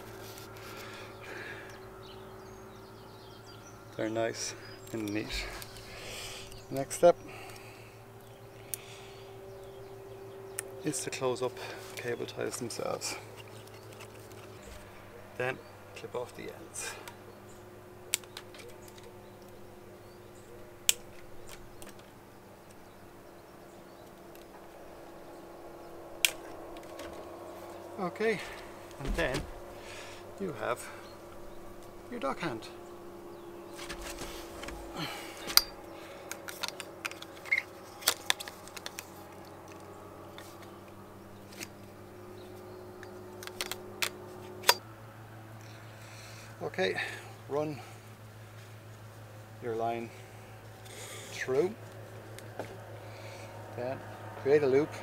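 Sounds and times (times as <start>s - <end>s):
machine drone: 0.0s - 47.1s
handling clicks: 18.1s - 19.6s, 33.7s - 41.8s, 43.0s - 44.8s.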